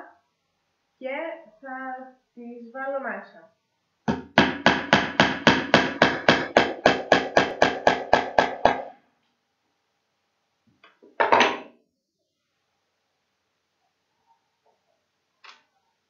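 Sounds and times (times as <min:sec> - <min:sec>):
hammer tapping nails into wood: 0:04.1 - 0:08.9.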